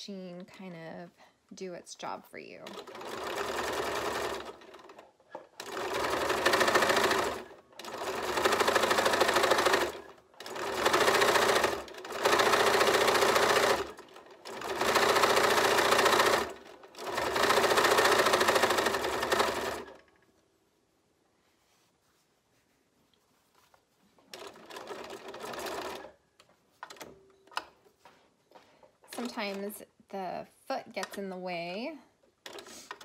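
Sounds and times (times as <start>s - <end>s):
sewing machine stitching: 2.6s - 20.1s, 24.3s - 26.2s, 29.0s - 29.8s, 32.4s - 33.0s.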